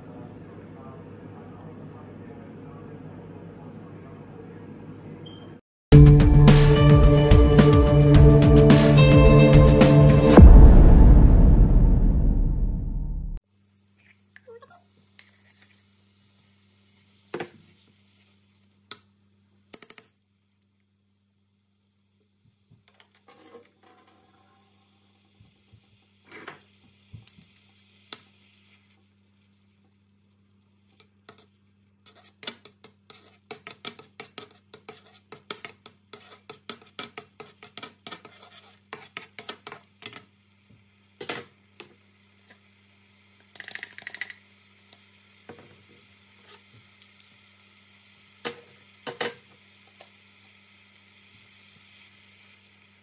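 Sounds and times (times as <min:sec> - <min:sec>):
coconut cream sizzling: 0:13.4 - 0:19.5, 0:23.1 - 0:53.0
metal spatula scraping a wok: 0:23.2 - 0:24.0, 0:31.2 - 0:39.5.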